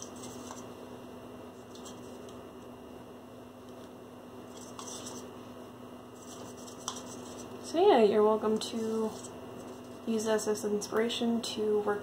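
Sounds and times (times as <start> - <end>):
low electrical hum: 0.0 - 12.0
paintbrush flicking paint: 4.5 - 5.3, 6.2 - 7.6.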